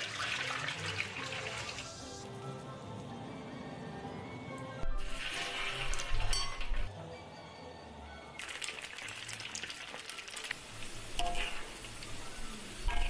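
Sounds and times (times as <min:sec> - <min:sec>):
oil sizzling in a wok: 0:00.0 - 0:02.4, 0:04.9 - 0:06.8, 0:08.4 - 0:13.0
clinks: 0:06.3 - 0:06.9.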